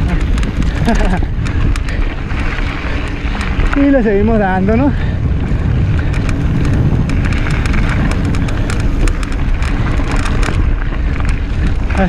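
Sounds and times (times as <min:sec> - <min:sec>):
bike clicking and rattling: 0:00.0 - 0:12.0
tyres on dirt trail: 0:00.0 - 0:12.0
wind rumble on microphone: 0:00.0 - 0:12.0.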